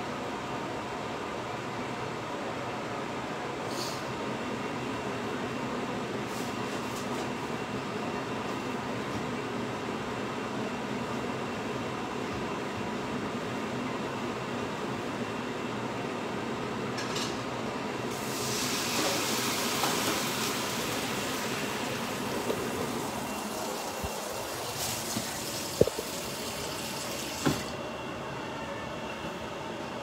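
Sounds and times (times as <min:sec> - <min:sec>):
water running into sink: 0:18.2 - 0:27.7.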